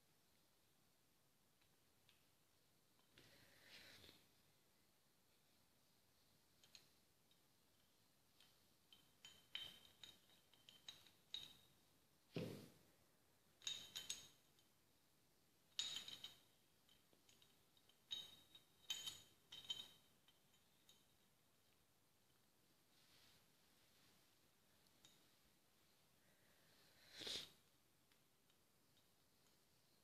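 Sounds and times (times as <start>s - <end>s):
metal parts clicking and clinking: 6.6s - 11.7s, 13.6s - 14.7s, 15.8s - 21.1s.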